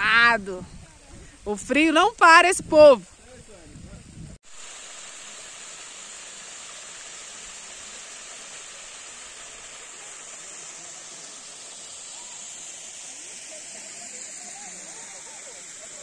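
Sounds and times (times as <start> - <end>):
small waterfall rushing: 4.4 - 16.0.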